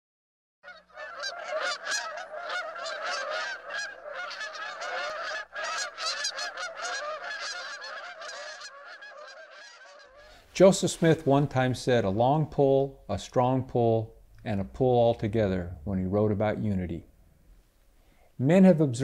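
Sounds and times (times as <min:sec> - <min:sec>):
geese honking in flight: 0:00.6 - 0:10.4.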